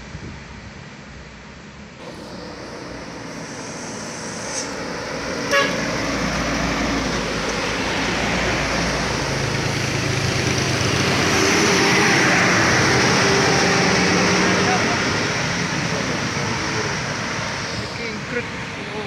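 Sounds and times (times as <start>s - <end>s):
bus passing: 0.0s - 19.0s
truck passing: 0.9s - 19.0s
horn toot: 5.5s - 6.0s.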